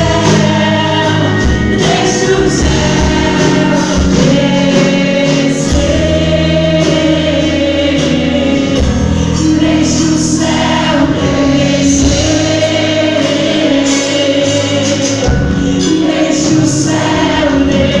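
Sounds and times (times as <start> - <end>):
drums: 0.0 - 18.0
guitar: 0.0 - 18.0.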